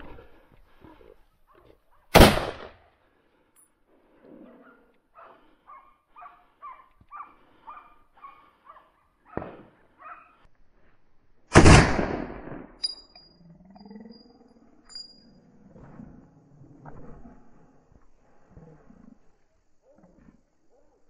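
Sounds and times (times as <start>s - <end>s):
loud gunshot: 2.1s - 2.8s, 11.5s - 12.8s
hunting dogs yelping: 4.5s - 10.5s.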